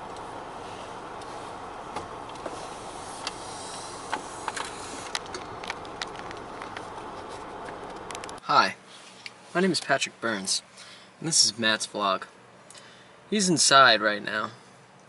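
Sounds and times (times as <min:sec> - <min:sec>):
vehicle cabin rumble and hiss: 0:00.0 - 0:15.0.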